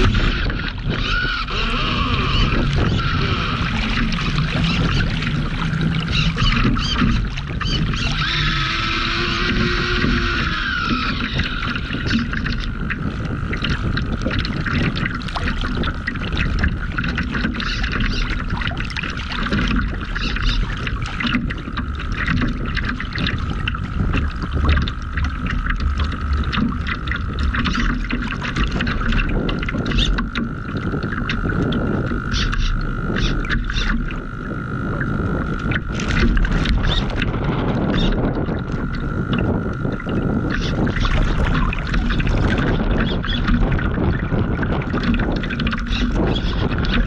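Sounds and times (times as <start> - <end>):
thin steady whine: 0.0 - 47.0
water rushing past hull: 0.0 - 47.0
wind buffeting microphone: 0.0 - 47.0
wave slaps: 2.0 - 8.0, 9.5 - 47.0.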